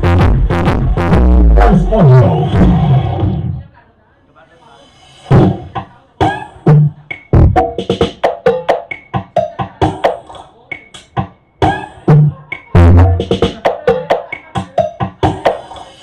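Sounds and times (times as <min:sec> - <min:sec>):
loud percussive dance music: 0:00.0 - 0:03.5, 0:05.2 - 0:16.0
deep bass thumps: 0:00.0 - 0:03.6.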